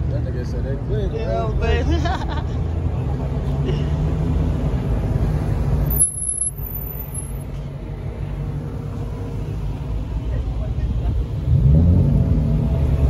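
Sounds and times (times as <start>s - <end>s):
car engine rumbling past: 7.5s - 13.0s.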